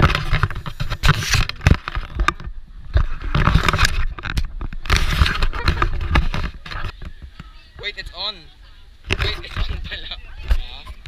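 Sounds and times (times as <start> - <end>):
camera handling rumble: 0.0 - 7.5
rustle and clatter: 0.0 - 8.0, 9.0 - 11.0.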